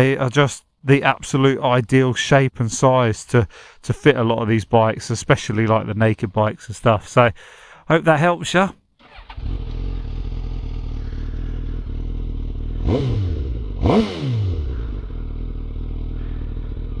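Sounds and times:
motorcycle engine idling: 9.0s - 17.0s
motorcycle engine revving: 9.0s - 17.0s.

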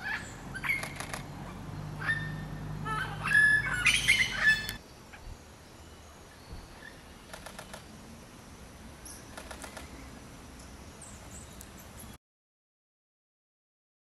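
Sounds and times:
bird singing ringing notes: 0.0s - 7.3s
faint bird ticks: 7.3s - 7.9s, 9.3s - 10.0s.

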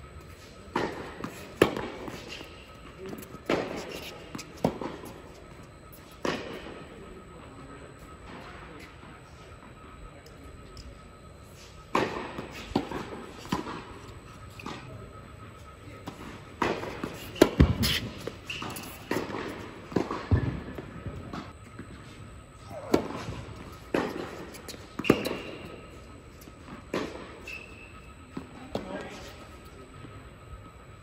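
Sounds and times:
racket hitting tennis ball: 0.7s - 6.6s, 11.9s - 14.9s, 16.0s - 20.5s, 22.8s - 26.0s.

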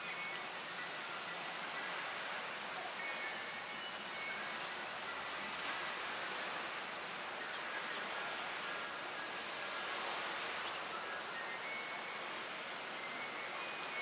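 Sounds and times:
outdoor ambient hiss: 0.0s - 14.0s.

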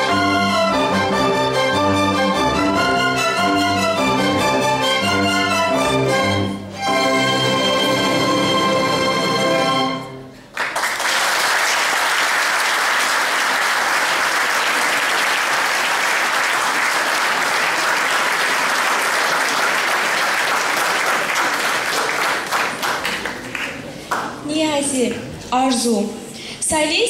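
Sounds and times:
string orchestra chord: 0.0s - 10.4s
audience applauding: 10.4s - 24.4s.

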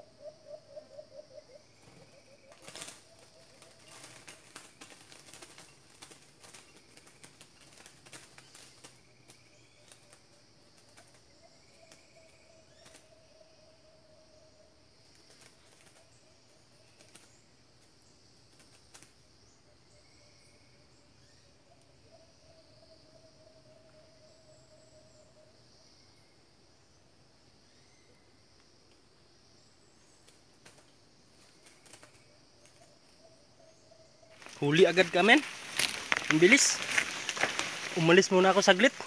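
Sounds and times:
bird calling: 0.0s - 5.7s, 32.7s - 39.0s
insects droning: 0.0s - 39.0s.

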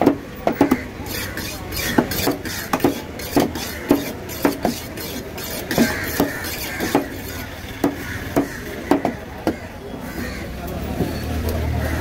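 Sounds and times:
knife chopping fish on wood: 0.0s - 9.6s.

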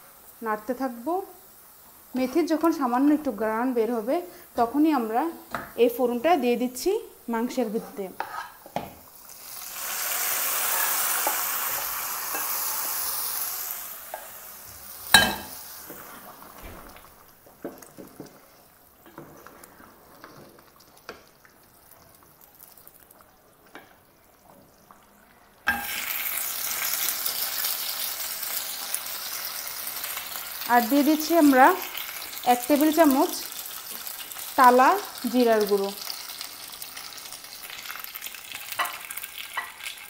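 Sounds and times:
hot oil hissing in curry: 0.0s - 17.2s, 25.7s - 40.0s
steady sizzle: 0.0s - 40.0s.

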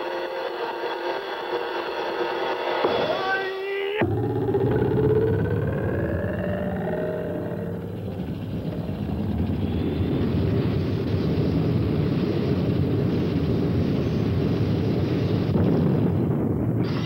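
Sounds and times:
large gong roaring: 4.0s - 10.9s.

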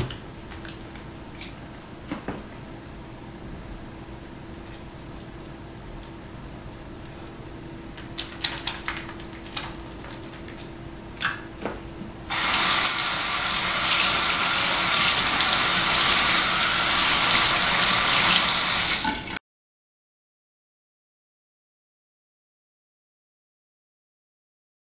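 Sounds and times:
soapy hands rubbing: 8.0s - 10.8s, 12.3s - 18.7s
faucet water running into sink: 12.3s - 19.4s.

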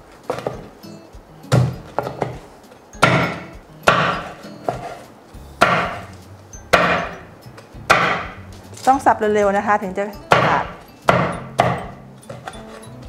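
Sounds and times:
cleaver chopping on wooden board: 1.5s - 2.4s, 3.0s - 5.0s, 5.6s - 6.1s, 6.7s - 7.1s, 7.9s - 8.4s, 10.3s - 12.6s.

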